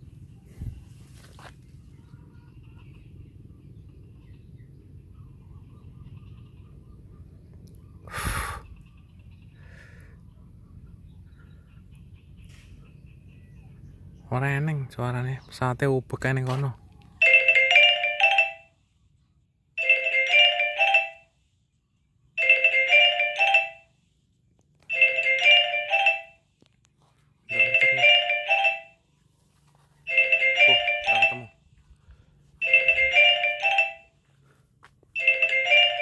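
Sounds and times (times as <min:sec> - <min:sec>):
phone ringtone chiming melody: 0:17.2 - 0:18.8, 0:19.8 - 0:21.4, 0:22.4 - 0:24.1, 0:24.9 - 0:26.5, 0:27.5 - 0:29.1, 0:30.1 - 0:31.6, 0:32.6 - 0:34.3, 0:35.2 - 0:36.0.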